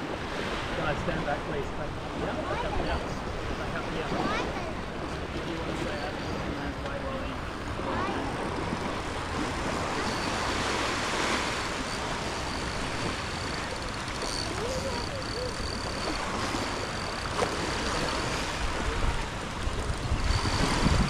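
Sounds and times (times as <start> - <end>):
surf washing on shore: 0.0 - 21.0
thin high whine: 5.8 - 21.0.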